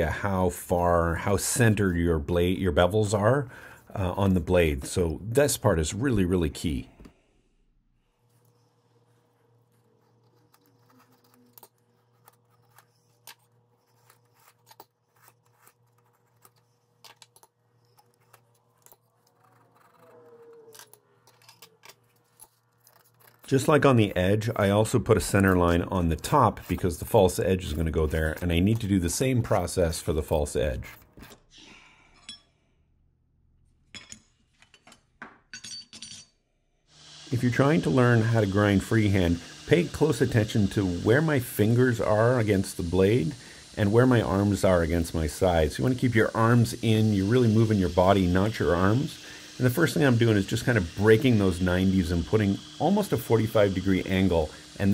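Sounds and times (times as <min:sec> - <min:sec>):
caliper scratching metal: 0:08.2 - 0:29.8.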